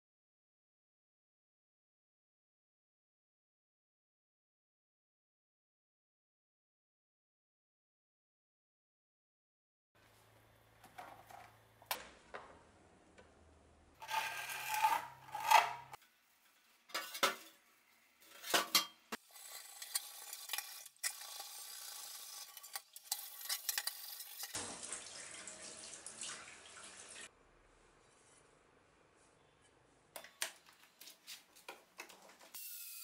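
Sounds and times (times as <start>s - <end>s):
tap water running: 19.2s - 27.3s.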